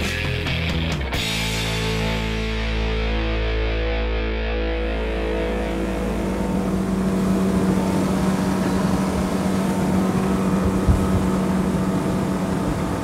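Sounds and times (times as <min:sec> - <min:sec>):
motorboat engine drone: 0:01.2 - 0:13.0
rush of wind and water: 0:05.4 - 0:13.0
low thump: 0:10.6 - 0:11.4.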